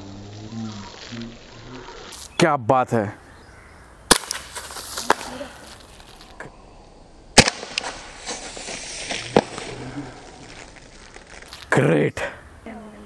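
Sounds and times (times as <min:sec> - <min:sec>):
pistol shots: 0:07.4 - 0:08.0.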